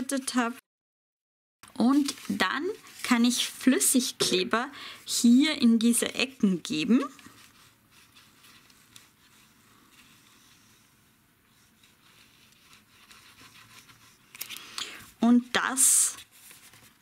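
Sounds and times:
paper box rustling: 16.2 - 17.0.

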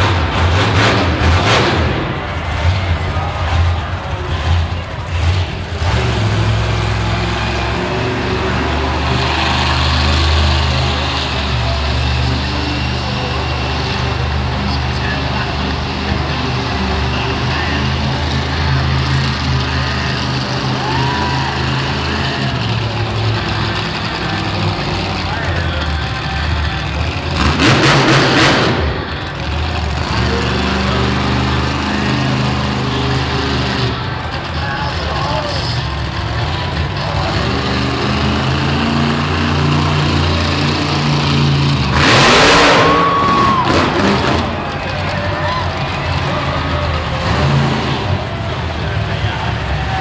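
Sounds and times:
truck engines deep rumble: 0.0 - 50.0.

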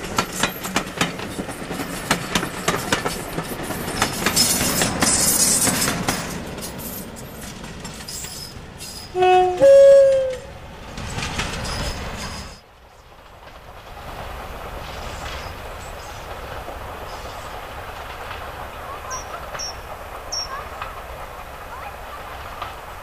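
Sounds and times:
diesel locomotive passing: 0.0 - 23.0
distant locomotive rumble: 0.0 - 23.0
wheels clattering over rail joints: 0.0 - 23.0
two-tone train horn: 9.1 - 10.5.

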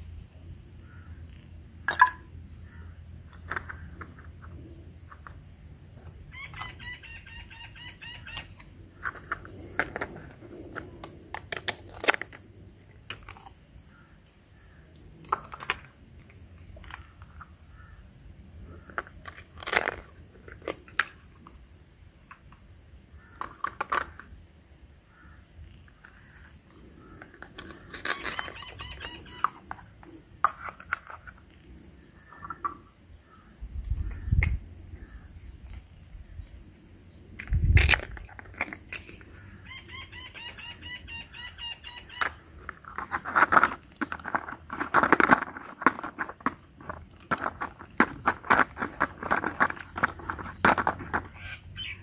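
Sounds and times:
small birds chirping: 0.0 - 30.2, 30.8 - 52.0
chicken calling: 6.3 - 8.7, 27.9 - 29.7, 39.4 - 42.5.

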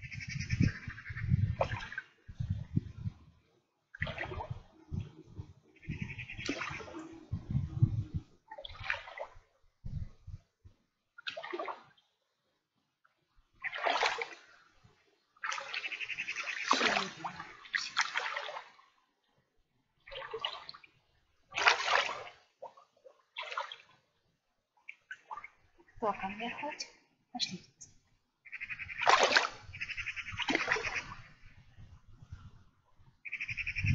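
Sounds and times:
water splashing around wading legs: 1.4 - 2.1, 3.9 - 7.4, 8.5 - 9.5, 11.2 - 12.0, 13.6 - 14.6, 15.4 - 18.9, 20.0 - 20.9, 21.5 - 24.0, 28.6 - 31.4.

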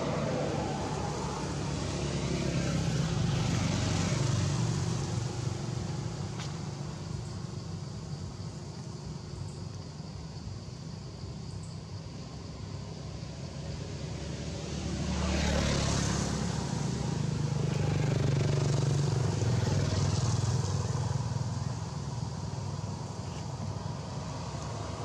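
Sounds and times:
motorbike engine running past: 14.3 - 22.0.

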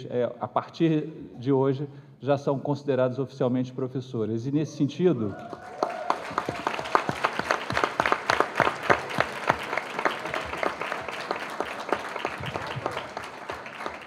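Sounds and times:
audience applause: 5.3 - 14.0.

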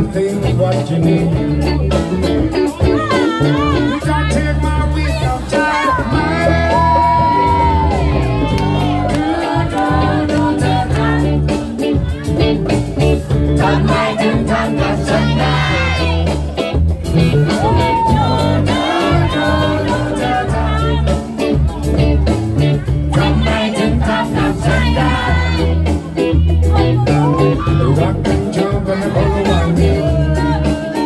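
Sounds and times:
congas: 0.0 - 31.0
electric bass line: 0.0 - 31.0
electric guitar: 0.0 - 31.0
person singing: 2.6 - 12.5, 17.3 - 21.9, 22.9 - 31.0.

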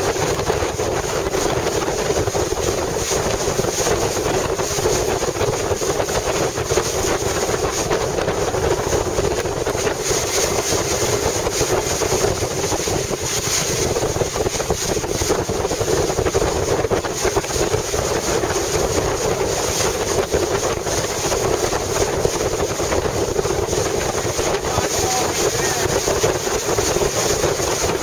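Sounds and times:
water rushing along boat hull: 0.0 - 28.0
wind buffeting microphone: 0.0 - 28.0.

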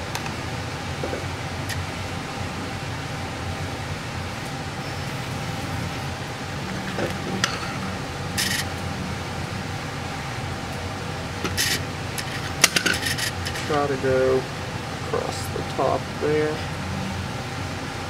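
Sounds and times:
room noise hiss and hum: 0.0 - 18.0
handling rustles and scrapes: 11.5 - 13.8.

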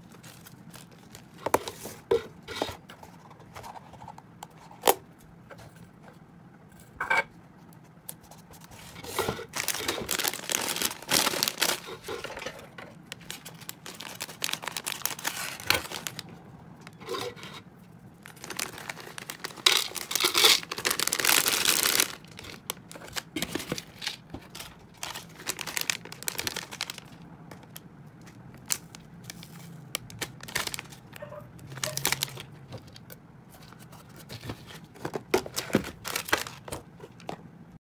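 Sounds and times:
plastic bag crinkling: 0.0 - 2.0, 8.7 - 12.5, 13.1 - 16.3, 18.2 - 37.2
dried food rustling: 0.0 - 4.0, 7.6 - 37.4.

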